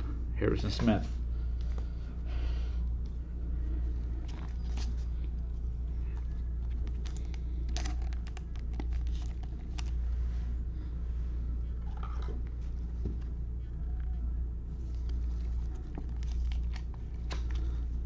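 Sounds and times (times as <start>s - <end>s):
low hum: 0.0s - 18.0s
cards handled rustles and clicks: 4.1s - 10.1s, 12.1s - 18.0s
cellophane wrapper crinkling: 6.6s - 10.0s.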